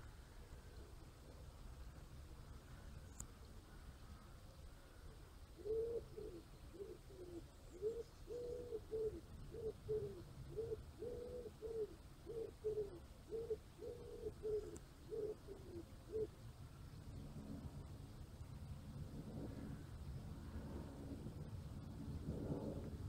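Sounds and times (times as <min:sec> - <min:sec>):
pigeon cooing: 0:05.6 - 0:16.4.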